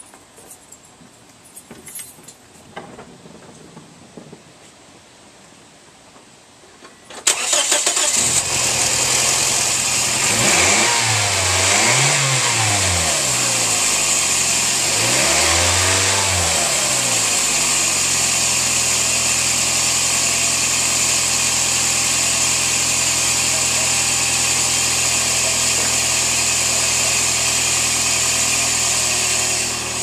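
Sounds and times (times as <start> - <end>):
car engine starting and revving: 7.2 - 30.0.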